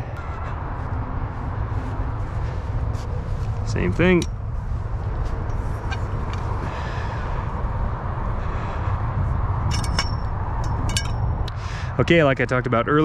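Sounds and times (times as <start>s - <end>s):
steady low rumble: 0.0s - 13.0s
metal poles clinking: 3.4s - 6.5s, 9.6s - 11.5s.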